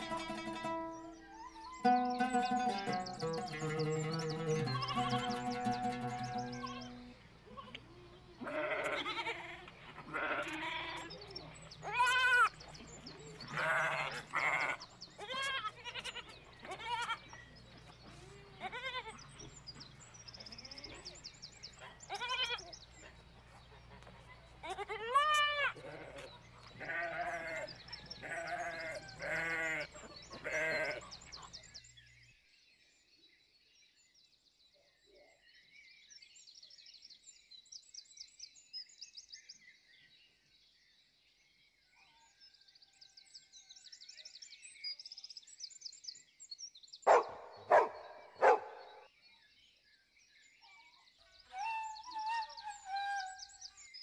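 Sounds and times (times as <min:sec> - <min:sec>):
faint bird chirps: 0:00.0 - 0:09.1
livestock bleating: 0:01.9 - 0:11.2, 0:11.8 - 0:12.5, 0:13.5 - 0:17.2, 0:18.5 - 0:19.2, 0:22.1 - 0:22.7, 0:24.6 - 0:31.1.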